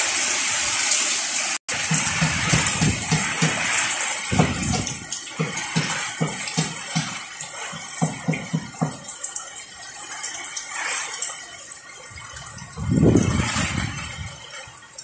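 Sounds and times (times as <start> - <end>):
heavy rain: 0.0 - 15.0
storm wind: 4.2 - 5.2, 12.1 - 15.0.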